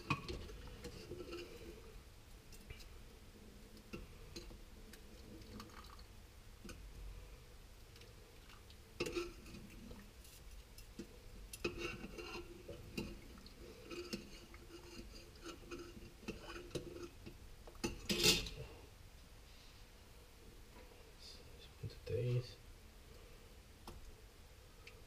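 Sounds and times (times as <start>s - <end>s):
spoon scraping in saucepan: 0.0s - 1.9s, 9.0s - 9.9s, 11.0s - 18.6s.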